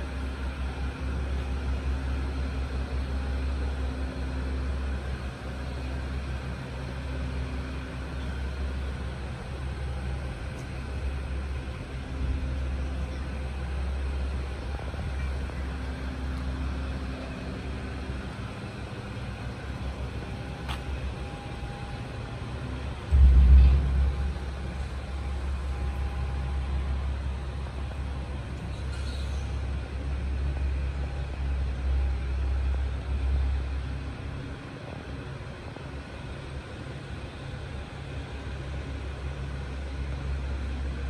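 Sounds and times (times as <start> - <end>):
steady low rumble: 7.7 - 28.7.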